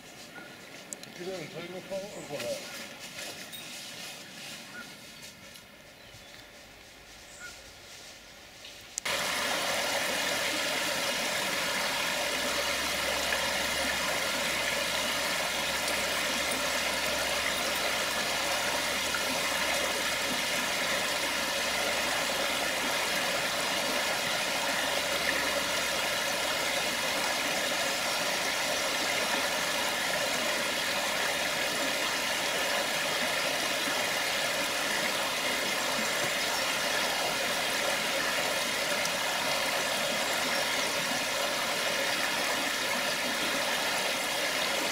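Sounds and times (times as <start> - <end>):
river running over stones: 9.0 - 44.9.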